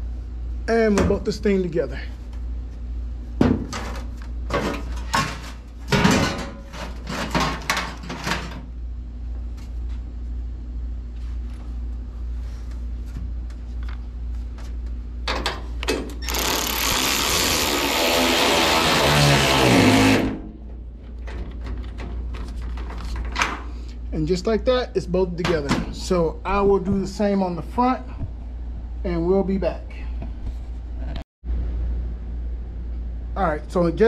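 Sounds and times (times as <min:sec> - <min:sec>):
steady low hum: 0:00.0 - 0:34.0
cordless power tool running: 0:16.2 - 0:20.4.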